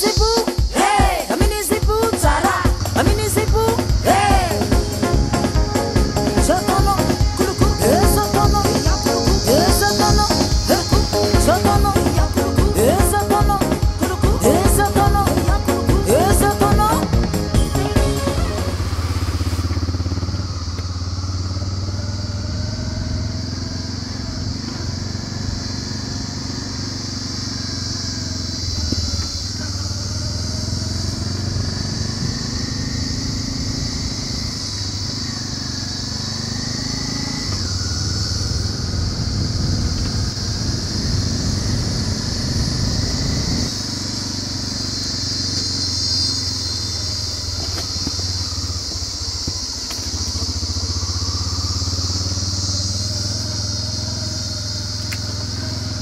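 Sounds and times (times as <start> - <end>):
motorcycle engine running: 0.0 - 56.0
steady high hiss: 2.0 - 21.4.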